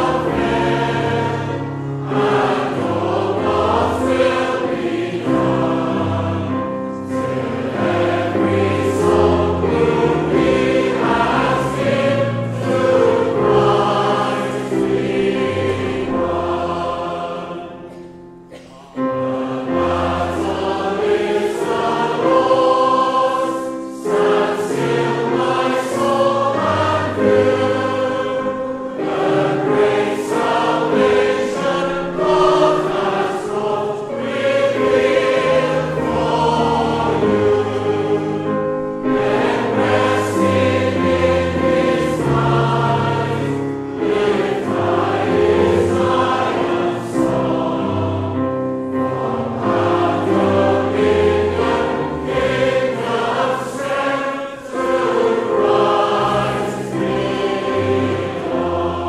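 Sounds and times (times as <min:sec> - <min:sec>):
choir singing a hymn: 0:00.0 - 0:59.0
instrumental accompaniment: 0:00.0 - 0:59.0.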